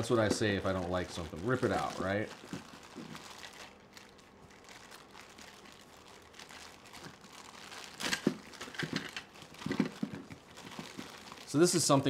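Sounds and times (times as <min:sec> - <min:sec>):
loud plastic crackle: 0:00.0 - 0:12.0
plastic bag crinkling: 0:00.0 - 0:12.0.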